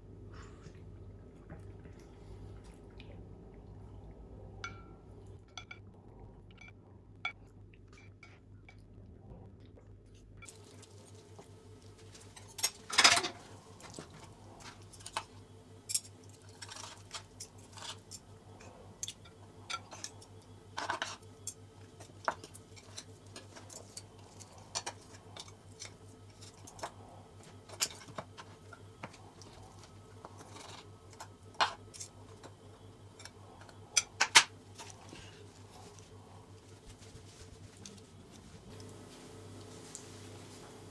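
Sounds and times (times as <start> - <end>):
cutlery clicking and scraping on bone: 15.9 - 35.0.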